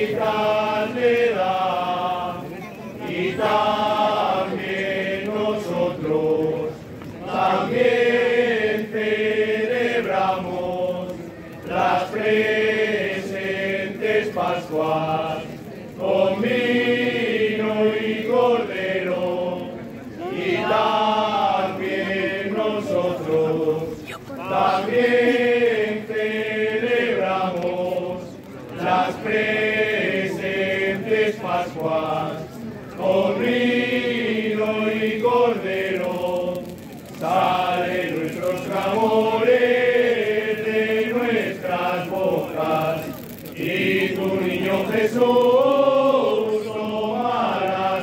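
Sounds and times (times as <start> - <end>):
group singing chant-like song: 0.0 - 48.0.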